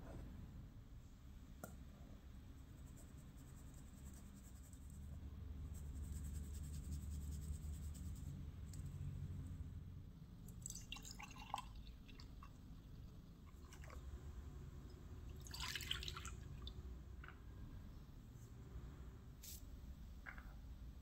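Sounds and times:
low steady hum: 0.0s - 21.0s
milk pouring into jug: 10.6s - 12.7s, 13.5s - 14.2s, 15.3s - 16.8s.

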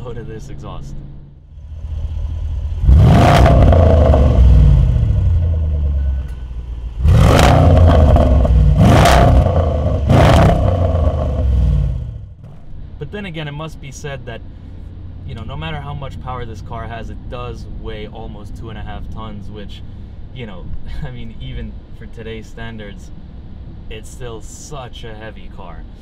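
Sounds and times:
car engine revving: 1.5s - 12.5s
exhaust cracks: 1.5s - 13.2s.

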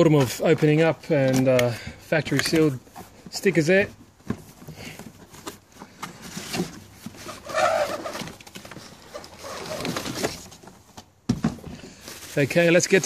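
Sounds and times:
plastic packaging rustling: 4.5s - 11.0s, 11.8s - 13.0s.

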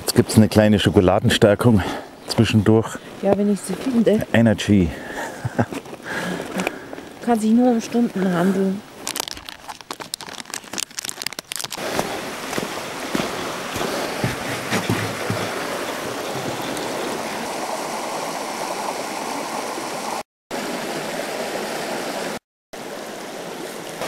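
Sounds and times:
brook running over stones: 0.0s - 24.0s
wrapper crinkling: 8.9s - 12.0s.

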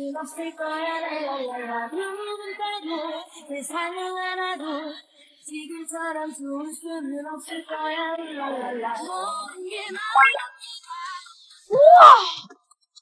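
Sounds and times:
woman singing song: 0.0s - 12.4s.

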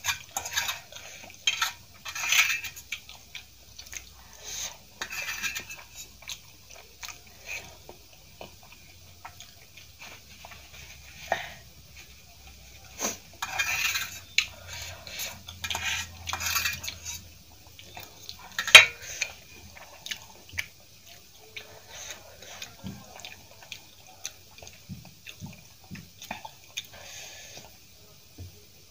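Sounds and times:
eating and chewing: 0.0s - 27.9s
fork scraping on metal plate: 1.5s - 2.8s, 5.0s - 6.1s, 13.4s - 17.2s, 18.6s - 19.1s.

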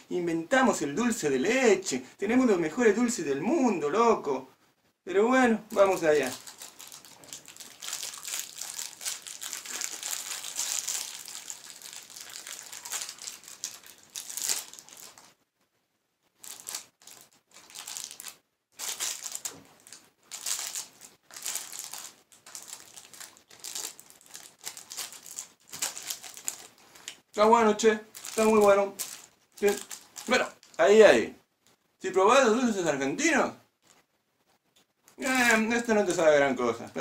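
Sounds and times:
candy wrapper crinkling: 5.7s - 15.4s, 16.3s - 31.0s, 35.1s - 35.9s.

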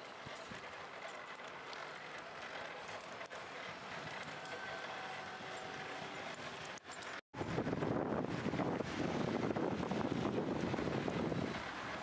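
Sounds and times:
metallic jingling: 0.0s - 8.8s, 11.6s - 12.0s.

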